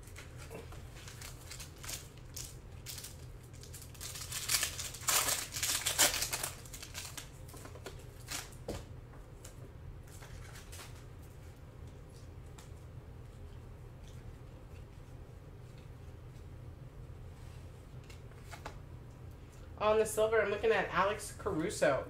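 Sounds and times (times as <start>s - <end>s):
foil wrapper crinkling and tearing: 0.0s - 8.6s
cards rustling: 0.1s - 8.6s.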